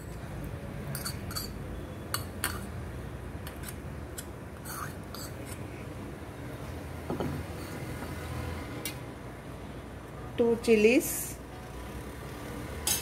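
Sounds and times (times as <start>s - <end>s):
spoon scraping ceramic bowl: 0.9s - 1.6s, 4.6s - 5.6s
spoon clinking: 0.9s - 2.7s.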